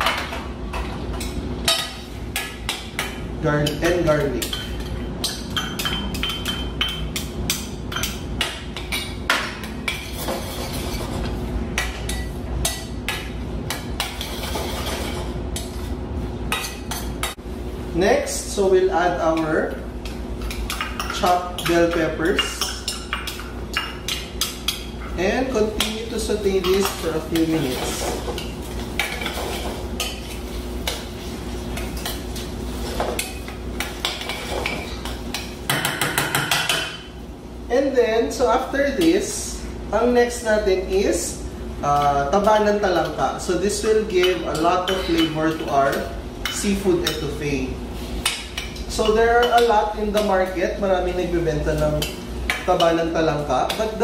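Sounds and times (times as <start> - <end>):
utensil stirring in metal bowl: 9.7 - 17.3, 19.2 - 36.8.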